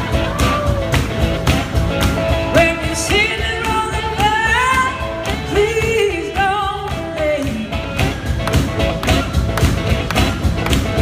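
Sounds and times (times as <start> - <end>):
drums: 0.0 - 11.0
hand claps: 0.4 - 2.3, 6.8 - 11.0.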